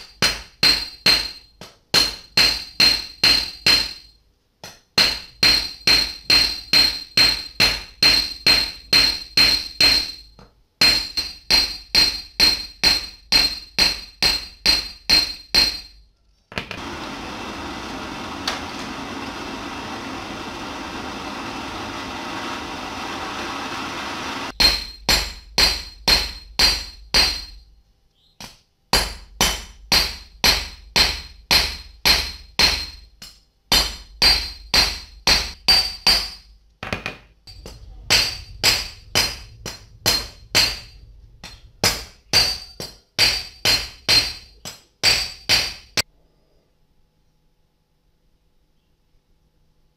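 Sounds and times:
hammer ringing on steel rod: 5.0s - 16.0s, 37.5s - 46.0s
gas torch hissing: 16.8s - 24.5s.

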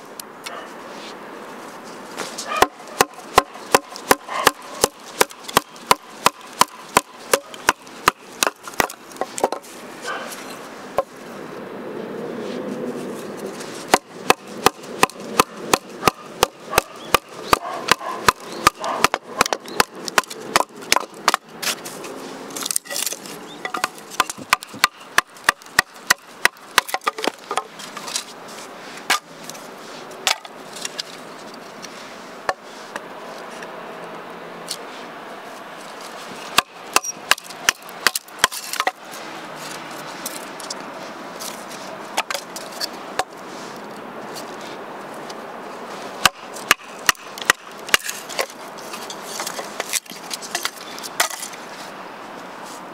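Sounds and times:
knife chopping on wooden board: 2.6s - 9.6s, 13.9s - 21.4s.

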